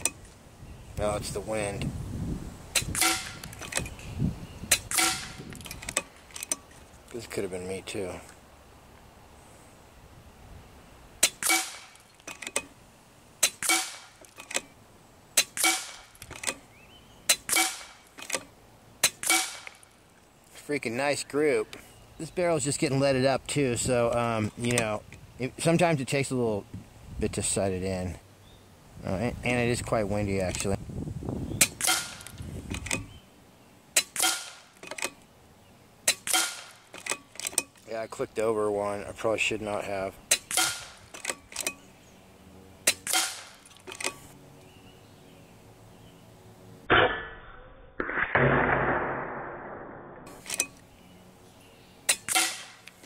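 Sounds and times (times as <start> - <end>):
air rifle shots cracking: 2.7 - 3.8, 4.7 - 6.2, 11.2 - 12.0, 13.4 - 14.6, 15.4 - 16.6, 17.3 - 18.2, 19.0 - 19.9, 31.6 - 33.0, 34.0 - 35.1, 36.0 - 37.1, 40.3 - 41.2, 42.8 - 43.7, 52.1 - 52.8.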